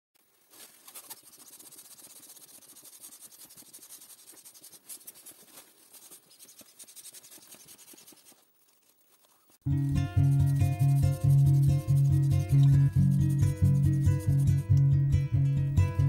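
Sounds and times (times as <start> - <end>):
foil balloon crinkling: 0.2 - 9.7.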